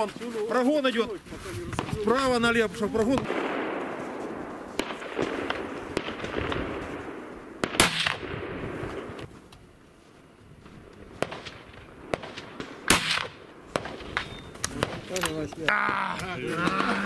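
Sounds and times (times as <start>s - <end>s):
sharp shot-like crack: 3.1s - 9.1s, 11.2s - 15.4s
gunshot with echo: 3.1s - 9.2s, 11.2s - 15.2s.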